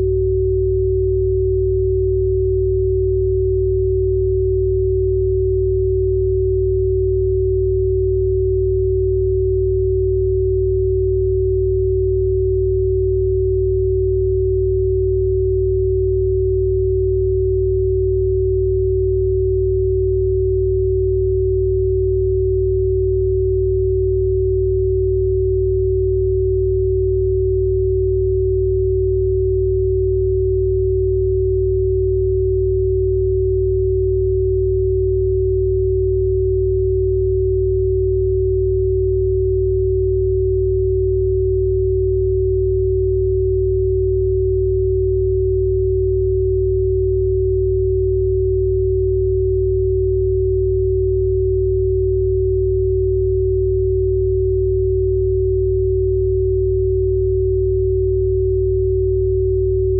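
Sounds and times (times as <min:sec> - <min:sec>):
electronic pure tone: 0:00.0 - 0:59.9.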